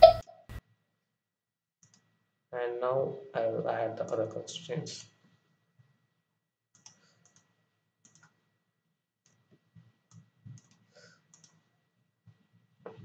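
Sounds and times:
computer mouse clicks: 0:01.8 - 0:02.1, 0:06.7 - 0:08.4, 0:09.2 - 0:09.5, 0:10.1 - 0:11.6.

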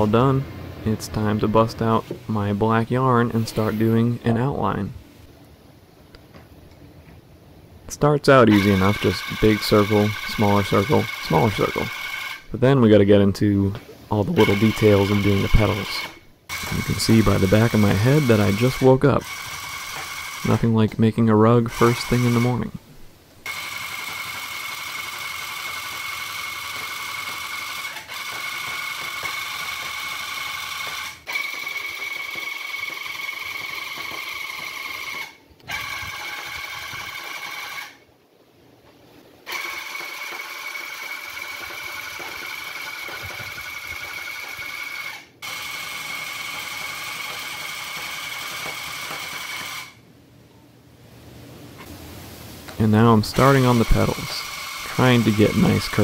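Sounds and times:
tufting gun whining: 0:08.4 - 0:12.6, 0:14.3 - 0:21.0, 0:23.4 - 0:38.0, 0:39.4 - 0:50.0, 0:53.1 - 0:56.0.

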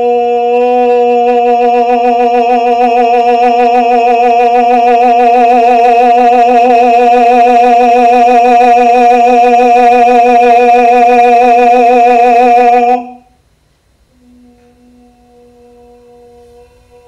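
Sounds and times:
man singing a long note: 0:00.0 - 0:13.3, 0:14.2 - 0:17.0
faint tone: 0:09.4 - 0:13.4, 0:14.1 - 0:17.0.

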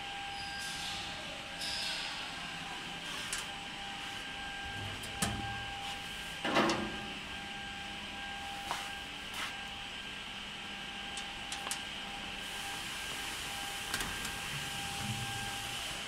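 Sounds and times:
boring machine hum and whine: 0:00.0 - 0:16.0.

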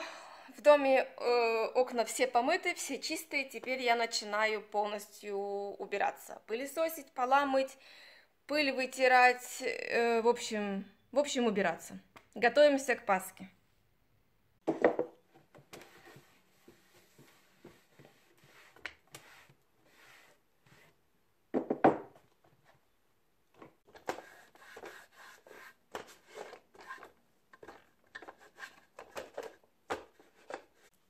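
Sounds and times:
objects knocking and clattering: 0:14.6 - 0:15.8, 0:21.5 - 0:22.4.

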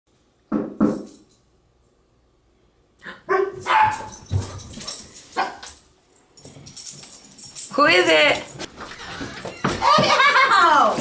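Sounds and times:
dog barking: 0:03.1 - 0:04.2.

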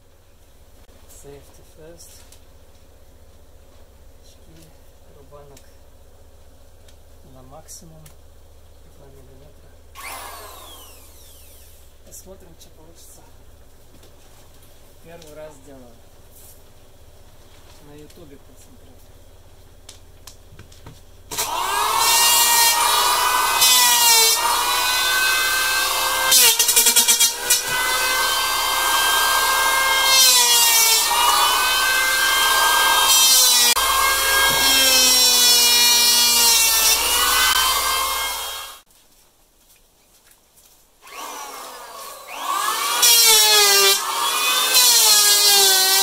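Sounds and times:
electric hand planer shaving wood: 0:10.0 - 0:11.8, 0:21.3 - 0:38.8, 0:41.0 - 0:46.0.

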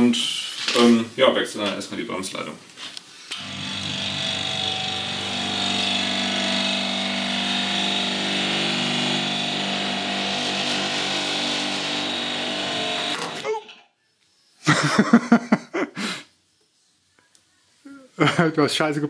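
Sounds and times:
lift table motor humming: 0:03.4 - 0:13.4.

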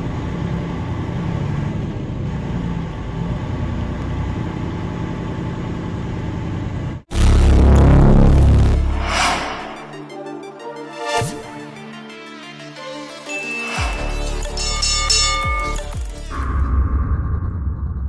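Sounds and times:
truck engine and road rumble: 0:00.0 - 0:09.6.

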